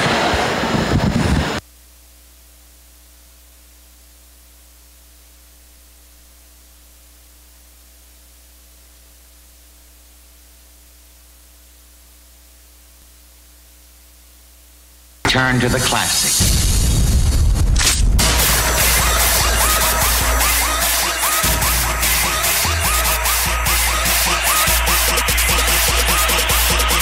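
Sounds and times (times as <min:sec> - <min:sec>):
electrical hum and hiss: 0:00.0 - 0:27.0
loud noise cutting off: 0:16.1 - 0:27.0.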